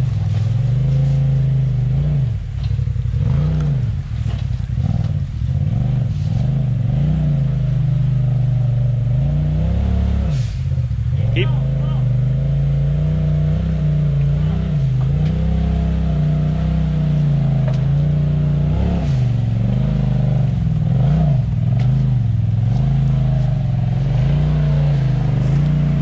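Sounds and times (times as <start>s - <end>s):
engine revving: 0.0s - 26.0s.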